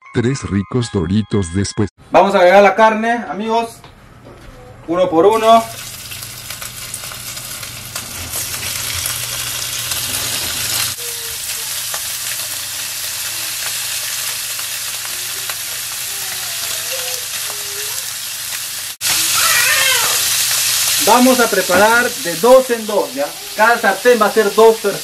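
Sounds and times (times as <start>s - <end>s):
meat sizzling in hot oil: 5.6s - 25.0s.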